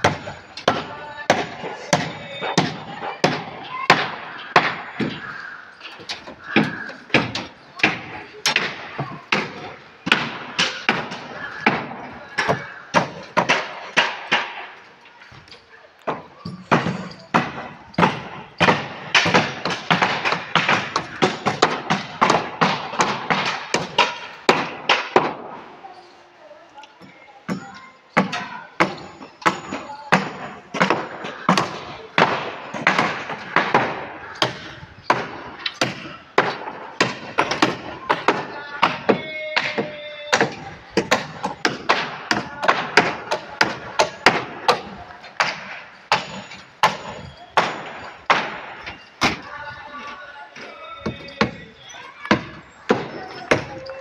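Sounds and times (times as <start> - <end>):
hammer blows with ringing: 0.0 - 14.8, 27.5 - 49.8
sharp knocks and clanks: 0.0 - 25.6, 27.0 - 54.0.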